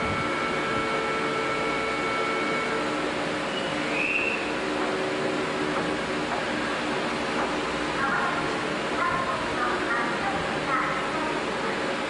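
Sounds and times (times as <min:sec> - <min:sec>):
brief high tone: 0:00.0 - 0:02.9
train equipment humming: 0:00.0 - 0:12.0
faint whistling tones: 0:03.5 - 0:04.6.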